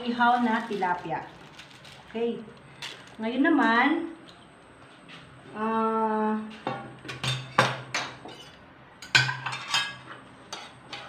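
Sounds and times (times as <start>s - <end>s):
metal dishes clattering on table: 6.7s - 11.0s.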